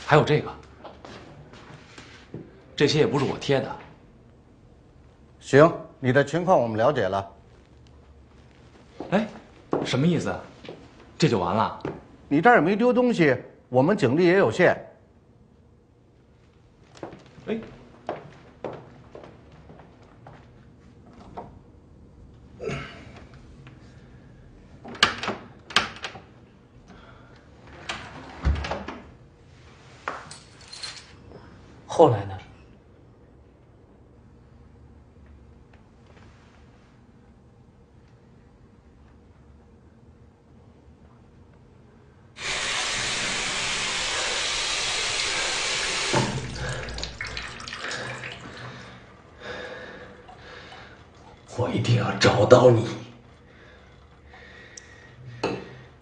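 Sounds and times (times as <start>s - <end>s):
running water: 42.4s - 49.0s.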